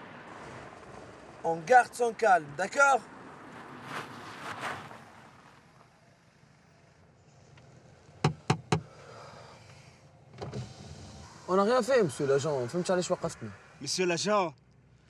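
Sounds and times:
knocks on car window: 8.2 - 8.9.

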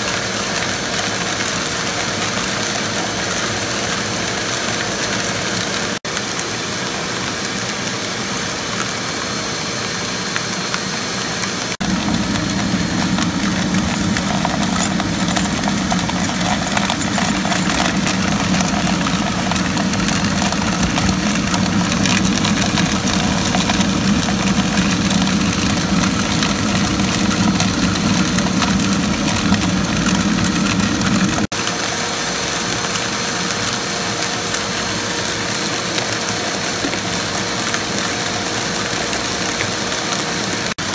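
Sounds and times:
suction motor humming: 11.8 - 31.5
nut pieces rattling: 12.1 - 28.8.

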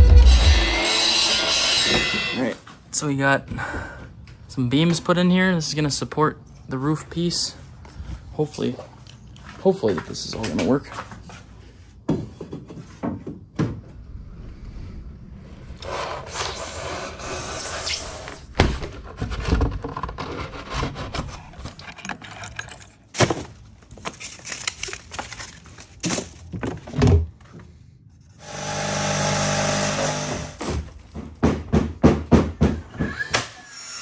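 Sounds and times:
hand tool scraping: 15.8 - 22.9, 28.4 - 30.7
steady machine hum: 28.4 - 30.6.

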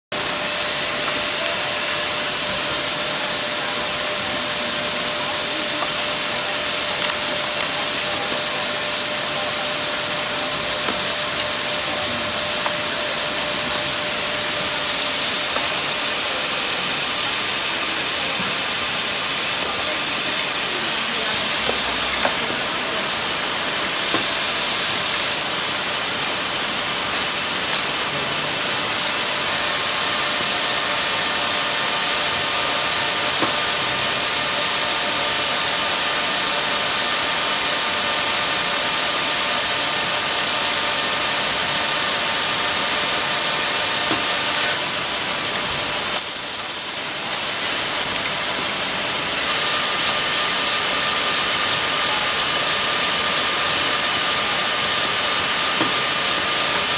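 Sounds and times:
knitting machine hissing: 0.2 - 56.9
air hiss blast: 46.0 - 47.1.

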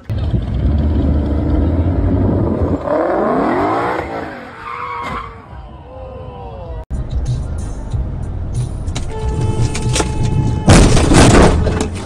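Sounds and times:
car engine rumbling and revving: 0.0 - 4.7.

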